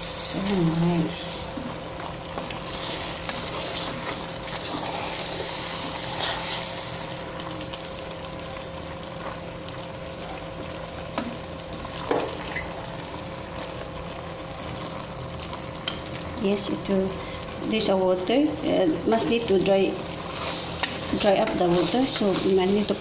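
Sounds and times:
vegetables sizzling in a pot: 0.0s - 23.0s
wooden spatula scraping a pot: 2.3s - 6.8s, 20.2s - 23.0s.

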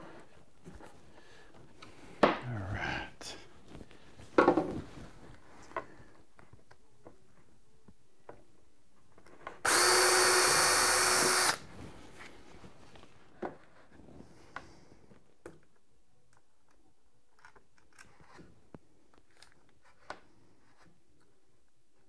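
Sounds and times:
cordless drill driving screw into metal: 9.6s - 11.6s.

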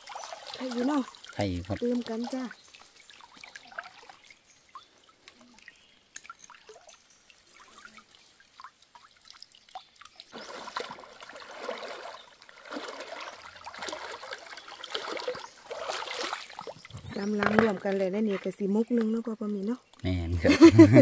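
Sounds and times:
water dripping and trickling: 0.0s - 21.0s
boots wading with splashes: 10.3s - 18.5s.

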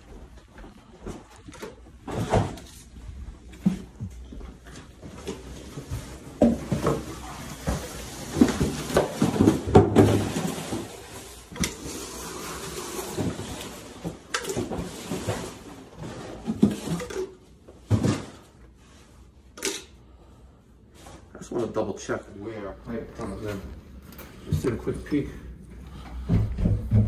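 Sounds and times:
shuffling footsteps: 0.0s - 8.9s, 22.6s - 27.0s.

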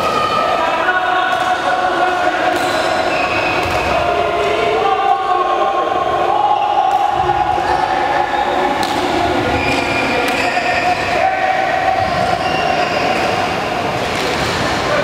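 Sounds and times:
racket hitting shuttlecock: 2.4s - 3.0s, 3.6s - 3.9s, 8.8s - 10.6s.

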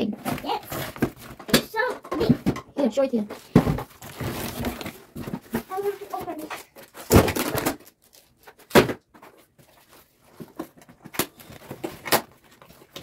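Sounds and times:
cardboard scraping: 0.0s - 1.4s, 3.4s - 7.8s.

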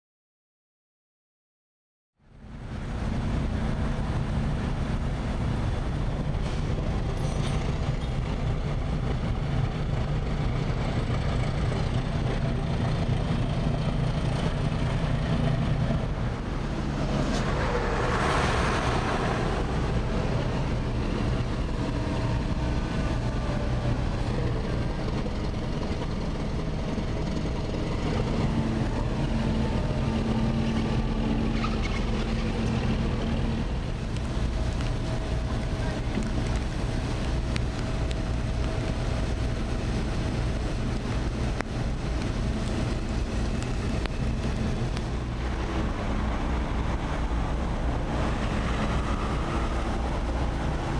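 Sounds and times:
diesel engines idling: 2.3s - 50.9s
truck passing: 2.3s - 50.9s.

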